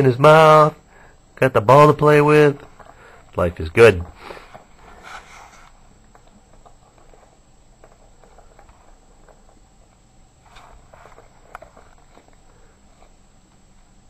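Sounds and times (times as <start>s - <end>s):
faint clicks and taps: 5.5s - 13.9s.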